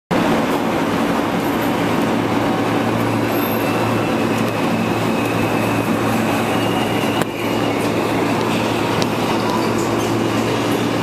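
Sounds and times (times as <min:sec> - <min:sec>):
subway train rumbling: 0:00.1 - 0:11.0.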